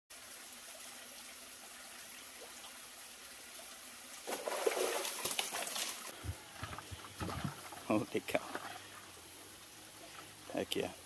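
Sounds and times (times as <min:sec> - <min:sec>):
stream trickling: 0:00.1 - 0:11.0
eel splashing at surface: 0:04.3 - 0:07.9.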